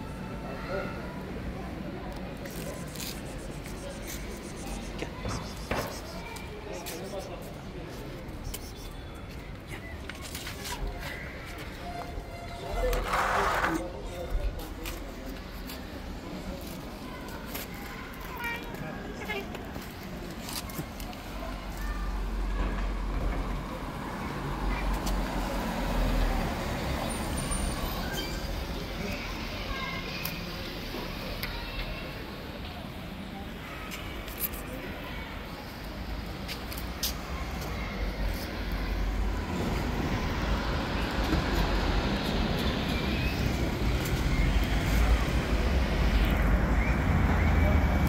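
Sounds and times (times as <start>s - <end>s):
road traffic rumble: 0.0s - 48.0s.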